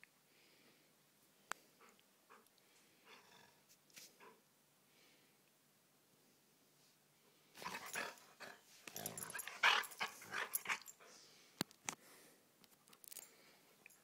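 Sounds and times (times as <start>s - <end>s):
dog growling in play: 7.6s - 10.9s.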